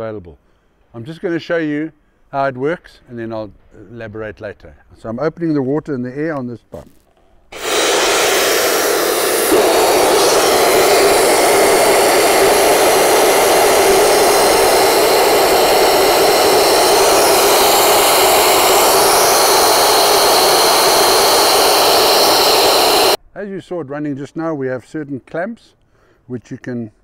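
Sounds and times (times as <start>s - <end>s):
rush of air and water mist: 7.6s - 23.2s.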